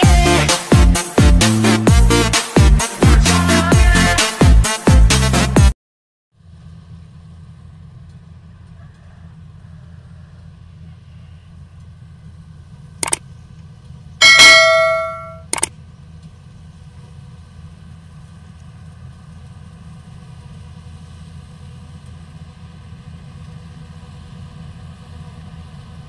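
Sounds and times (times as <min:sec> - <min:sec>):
combine harvester engine hum: 0:06.4 - 0:26.0
bright bell ding: 0:14.2 - 0:15.5
button click: 0:14.2 - 0:15.7.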